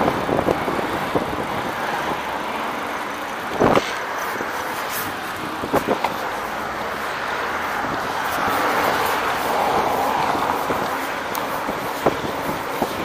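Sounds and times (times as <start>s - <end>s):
tyre hissing on damp pavement: 0.2s - 13.0s
wind on microphone: 7.5s - 13.0s.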